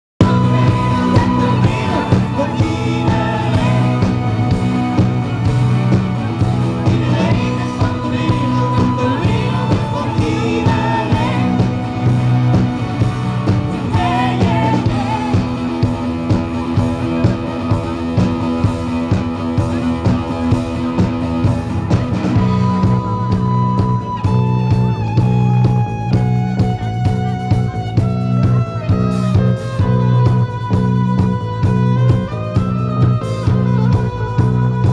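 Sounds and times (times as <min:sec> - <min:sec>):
male and female vocals: 0:00.2 - 0:05.2, 0:06.7 - 0:12.7, 0:13.6 - 0:16.0
live rock band playing: 0:00.2 - 0:34.9.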